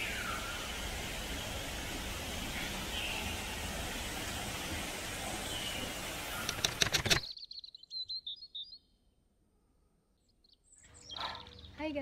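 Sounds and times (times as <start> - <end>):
waterfall splashing: 0.0 - 7.0
sharp clicks: 6.4 - 7.3.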